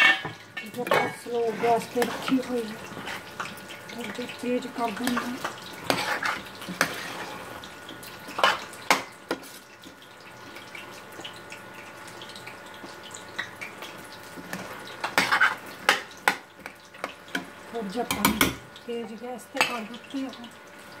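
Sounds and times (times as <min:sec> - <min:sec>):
vegetables sizzling faintly: 0:00.0 - 0:21.0
metal spoon scraping a pot: 0:05.0 - 0:07.5, 0:14.5 - 0:16.0.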